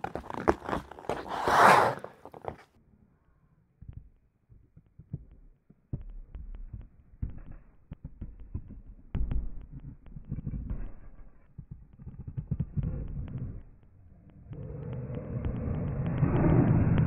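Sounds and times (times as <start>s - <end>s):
skate blades on ice: 0.0s - 2.7s.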